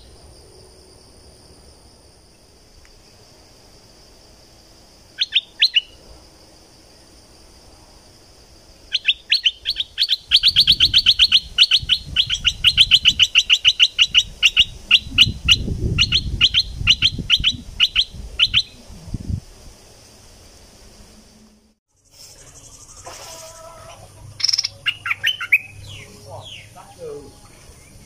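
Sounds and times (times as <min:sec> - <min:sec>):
bird sharp chirps: 0:05.2 - 0:06.0, 0:08.9 - 0:18.8, 0:24.3 - 0:26.8.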